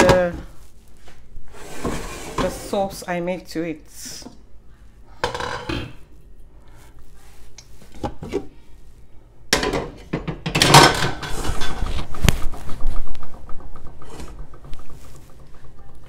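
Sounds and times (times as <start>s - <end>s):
metal ladle knocking on pots: 9.5s - 11.1s.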